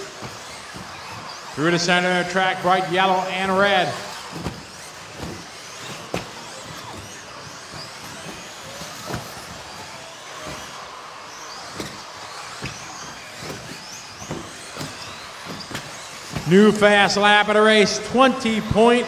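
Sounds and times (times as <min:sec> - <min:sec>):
rc car motors whining: 0:00.0 - 0:19.0
sharp knocks of toy cars: 0:00.1 - 0:01.6, 0:04.1 - 0:16.5.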